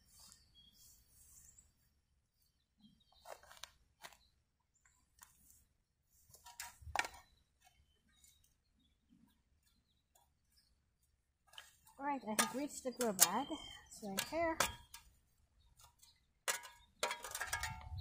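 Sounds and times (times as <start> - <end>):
spade digging into soil: 11.5 - 15.2, 15.8 - 18.0.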